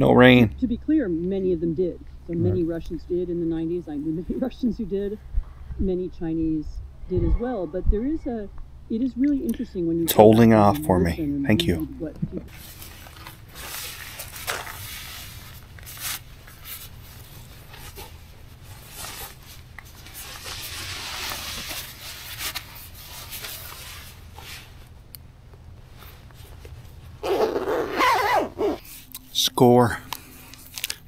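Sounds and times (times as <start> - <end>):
nylon jacket rustling: 12.5 - 25.0, 25.8 - 29.1.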